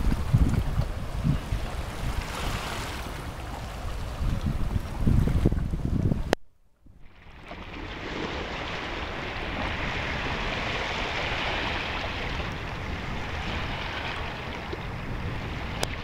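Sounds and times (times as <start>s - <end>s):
sea waves washing against rocks: 0.0s - 6.3s, 7.0s - 16.0s.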